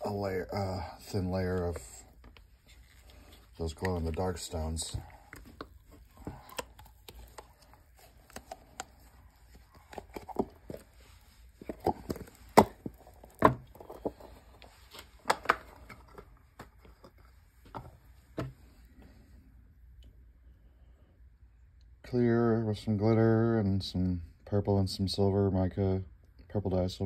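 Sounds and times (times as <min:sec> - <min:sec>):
hands clicking resin from mold: 0:11.6 - 0:14.6.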